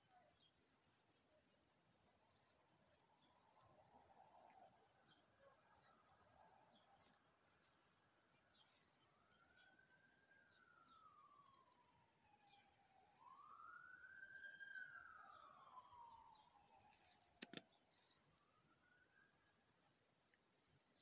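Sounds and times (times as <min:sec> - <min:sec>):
faint siren wailing: 0:03.2 - 0:20.0
sharp clicks: 0:17.4 - 0:17.8.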